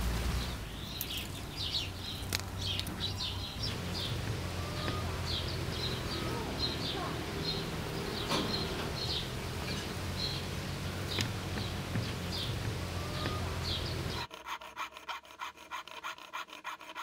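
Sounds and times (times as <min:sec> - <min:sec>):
birds chirping: 0:00.0 - 0:14.3
bee buzzing: 0:01.2 - 0:14.3
saw cutting thin metal: 0:13.5 - 0:17.0.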